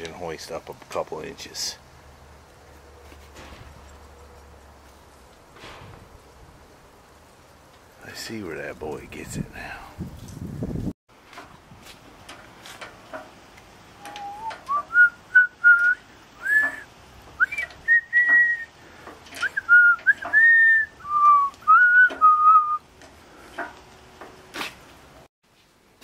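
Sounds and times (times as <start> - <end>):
person whistling a tune: 14.0 - 16.8, 17.4 - 18.7, 19.4 - 22.8.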